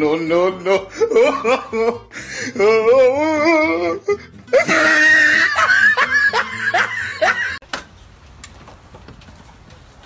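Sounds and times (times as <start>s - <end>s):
person laughing in squeals: 0.7s - 7.6s.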